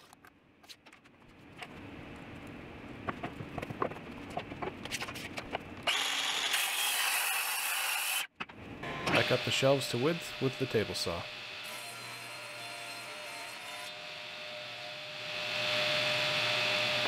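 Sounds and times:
circular saw cutting wood: 0:05.9 - 0:08.3, 0:08.9 - 0:17.0.

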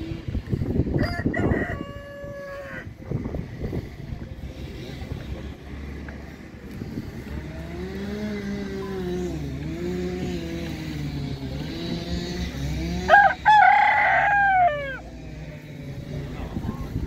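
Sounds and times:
rooster crowing: 0:01.0 - 0:02.9, 0:13.1 - 0:15.1
low engine drone: 0:01.8 - 0:17.0.

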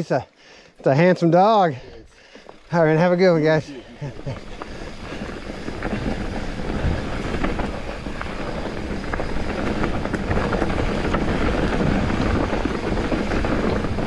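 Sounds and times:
bike tyres on dirt trail: 0:00.1 - 0:14.0
bike rattles and clicks: 0:00.7 - 0:14.0
wind buffeting microphone: 0:04.0 - 0:14.0.

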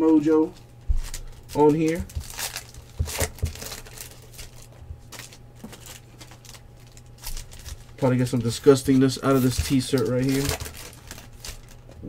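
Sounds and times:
packaging crinkling: 0:00.6 - 0:12.0.

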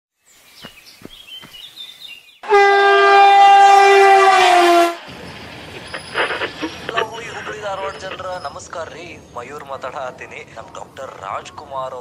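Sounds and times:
train horn blast: 0:02.4 - 0:05.1
train rumble: 0:03.9 - 0:12.0.

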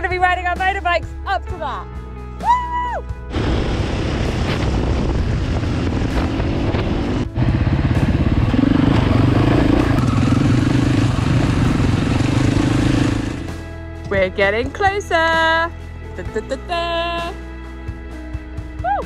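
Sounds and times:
wind: 0:02.4 - 0:13.7
motorcycle engine running: 0:03.3 - 0:14.2.

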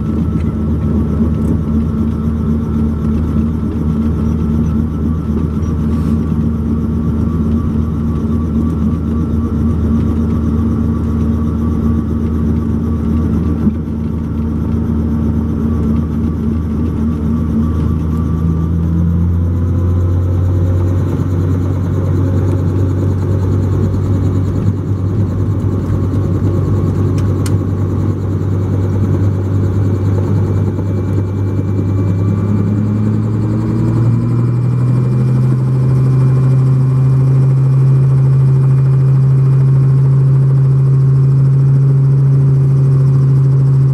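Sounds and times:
helicopter engine and rotor: 0:00.0 - 0:43.9.

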